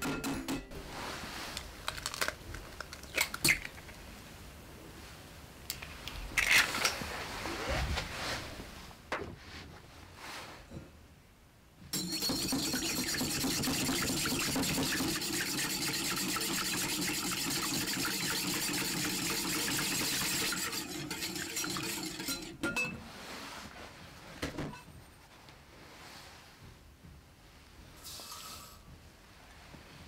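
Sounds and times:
whisk clinking against glass bowl: 12.0s - 22.9s
egg sloshing: 12.3s - 22.5s.

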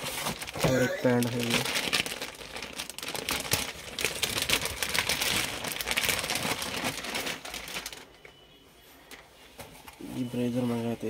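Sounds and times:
plastic garment bag crinkling: 0.0s - 8.3s.

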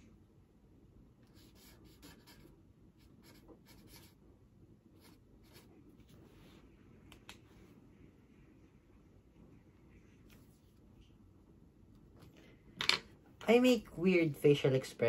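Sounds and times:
pen scratching while writing: 1.3s - 4.2s.

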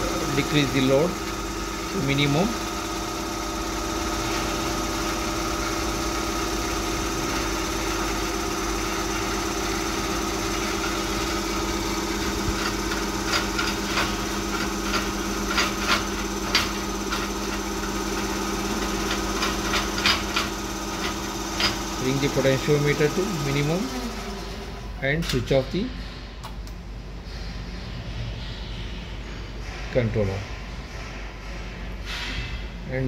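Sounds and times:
electric motor humming: 0.0s - 25.0s.

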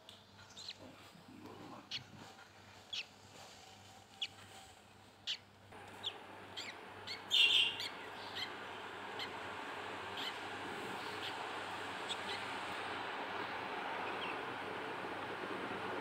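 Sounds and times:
steady hiss: 2.3s - 16.0s
chicks peeping: 5.3s - 14.5s.

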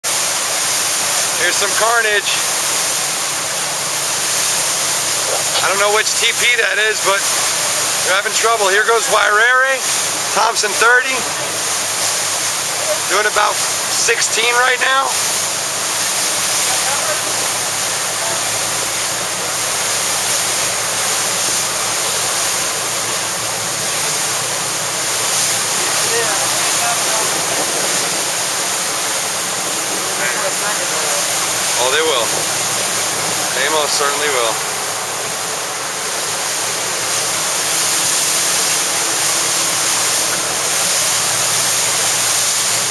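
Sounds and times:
choppy sea water: 0.0s - 42.9s
wind: 0.0s - 42.9s.

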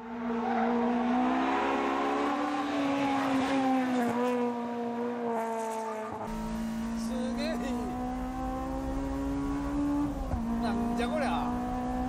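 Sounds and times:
car engine revving passing by: 0.1s - 12.0s.

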